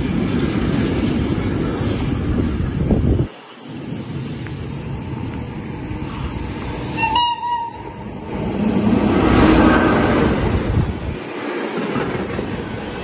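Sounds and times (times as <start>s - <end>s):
train rumbling past: 0.0s - 13.0s
train horn blast: 6.9s - 8.0s.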